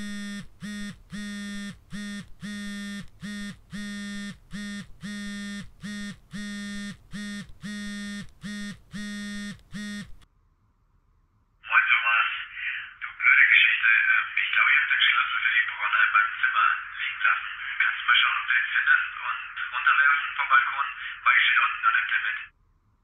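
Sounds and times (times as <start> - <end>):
mobile phone buzzing: 0.0 - 10.2.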